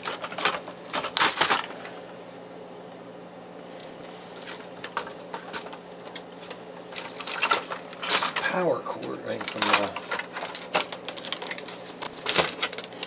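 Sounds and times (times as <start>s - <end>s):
plastic printer parts clicking: 0.0s - 1.7s, 4.8s - 13.0s
steady low hum: 0.0s - 13.0s.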